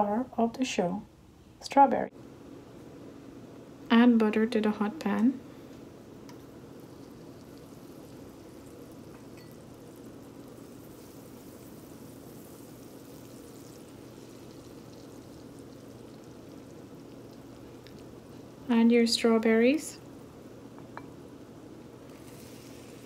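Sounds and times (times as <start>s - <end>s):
butter sizzling in a saucepan: 6.4s - 21.1s, 22.0s - 23.0s.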